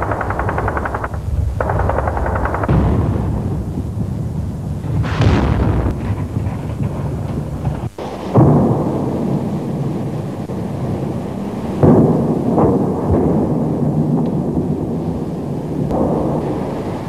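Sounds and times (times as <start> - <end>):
shells exploding: 0.0 - 9.0
long rolling rumble: 0.0 - 17.0.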